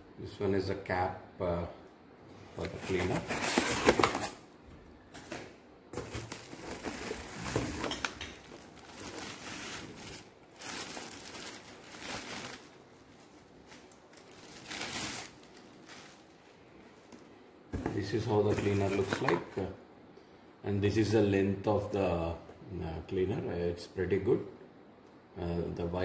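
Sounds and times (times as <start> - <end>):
bubble wrap and cardboard rustling: 2.6 - 4.4, 6.0 - 19.7.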